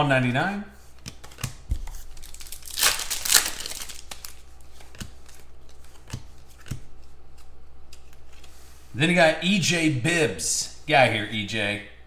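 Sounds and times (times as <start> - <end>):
cards rustling: 0.8 - 8.8
cards clicking and tapping: 1.0 - 2.0, 3.1 - 8.5.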